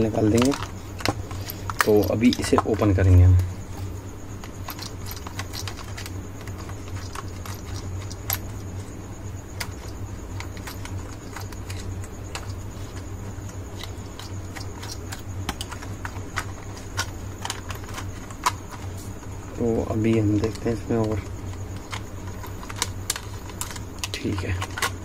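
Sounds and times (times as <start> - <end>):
hands handling plastic toy: 0.0 - 2.8, 20.0 - 25.0
steady low hum: 0.0 - 25.0
screwdriver clicking on plastic: 20.0 - 25.0.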